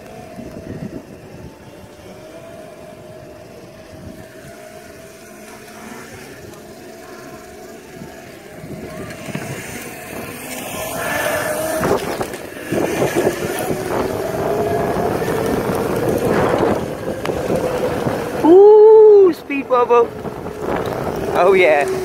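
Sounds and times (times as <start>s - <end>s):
faint steady whine: 0.0s - 22.0s
small wheels rolling over bricks: 0.0s - 22.0s
wind buffeting microphone: 0.0s - 22.0s
person exclaiming: 18.4s - 19.7s.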